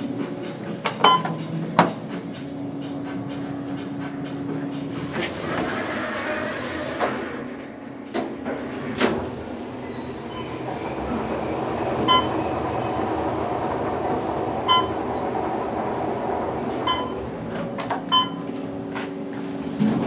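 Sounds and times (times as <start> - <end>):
elevator rumble and air rush: 0.0 - 20.0.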